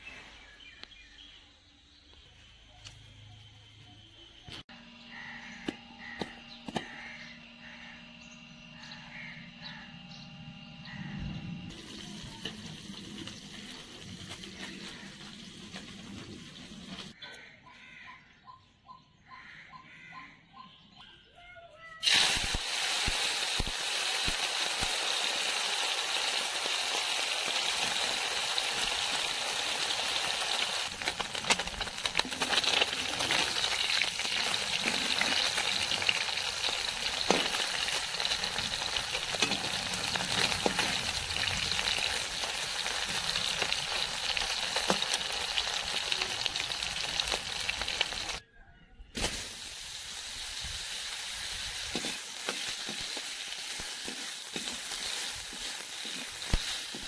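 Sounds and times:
fish deep-frying in oil: 0:11.7 - 0:17.2, 0:22.0 - 0:48.4, 0:49.2 - 0:57.0.

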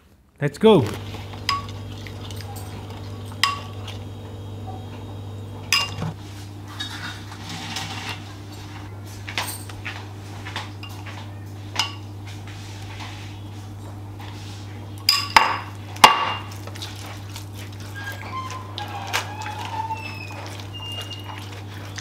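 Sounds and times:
steady low hum: 0:00.5 - 0:06.5.

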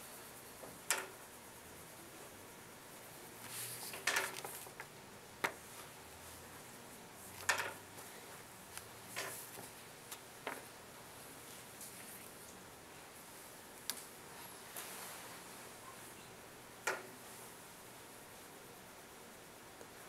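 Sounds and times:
paper rustling: 0:03.4 - 0:04.9.

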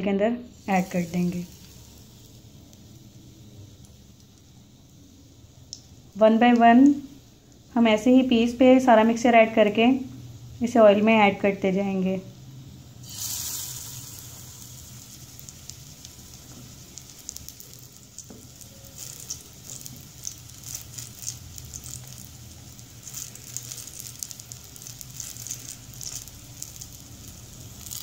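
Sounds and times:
oil sizzling in a pan: 0:00.4 - 0:28.0
oil popping: 0:13.0 - 0:28.0.

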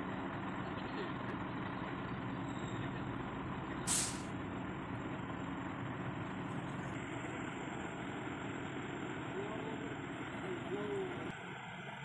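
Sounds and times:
truck diesel engine idling: 0:00.0 - 0:12.0
compressed air hiss: 0:03.9 - 0:04.3.

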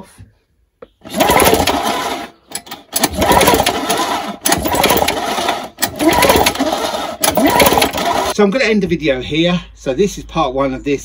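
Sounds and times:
lawnmower engine cranked by hand: 0:01.0 - 0:08.4.

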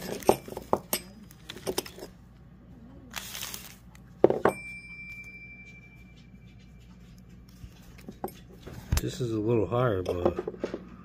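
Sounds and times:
paper and plastic crinkling: 0:03.1 - 0:04.3
high metallic ring: 0:04.4 - 0:06.8.

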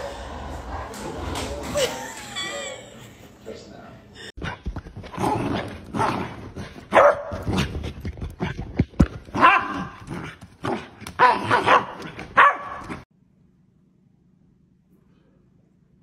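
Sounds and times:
puppy barking: 0:06.9 - 0:07.4, 0:09.4 - 0:10.0, 0:11.2 - 0:13.0.

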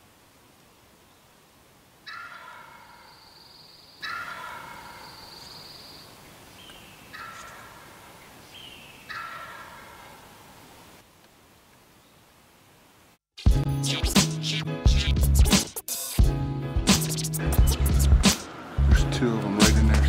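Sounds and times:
turkey gobbling: 0:02.0 - 0:03.4, 0:04.0 - 0:05.6, 0:07.1 - 0:08.1, 0:09.1 - 0:10.5.

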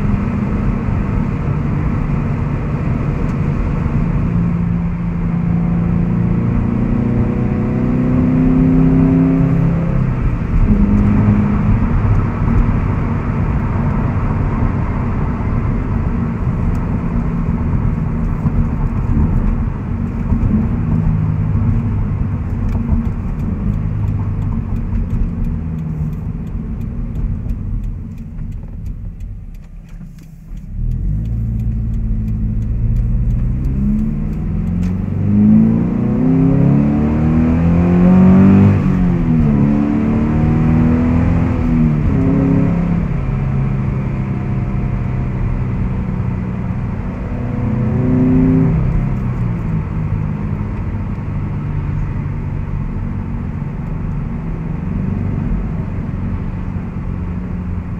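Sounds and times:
car engine accelerating: 0:00.0 - 0:57.9.

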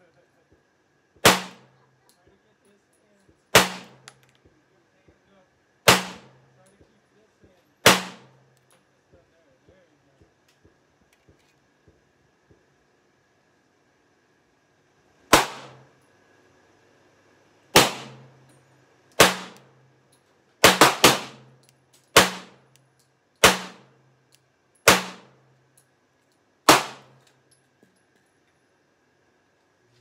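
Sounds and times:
pistol shots with echo: 0:01.2 - 0:01.7, 0:03.5 - 0:04.1, 0:05.9 - 0:06.4, 0:07.8 - 0:08.4, 0:15.3 - 0:15.8, 0:17.8 - 0:18.2, 0:19.2 - 0:19.7, 0:20.6 - 0:21.5, 0:22.2 - 0:22.6, 0:23.4 - 0:23.9, 0:24.8 - 0:25.3, 0:26.7 - 0:27.1.

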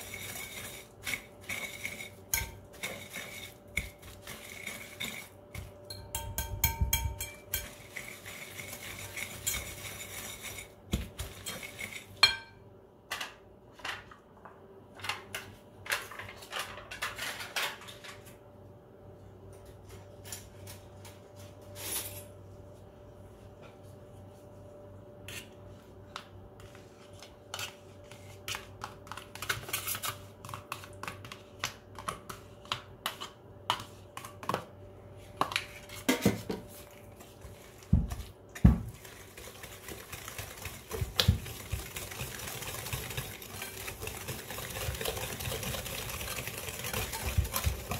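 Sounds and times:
whisk beating batter in glass bowl: 0:00.0 - 0:12.2, 0:37.2 - 0:47.9.

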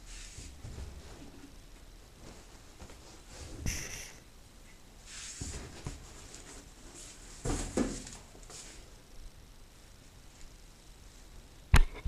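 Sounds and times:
fabric rustling: 0:00.1 - 0:03.7.

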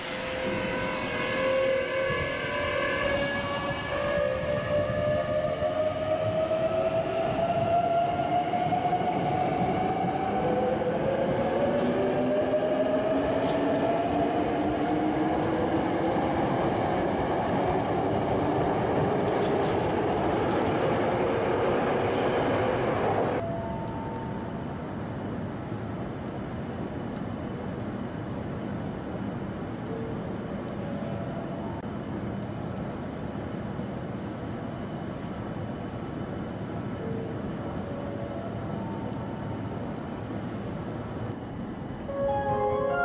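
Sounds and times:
air hiss: 0:00.0 - 0:01.0.

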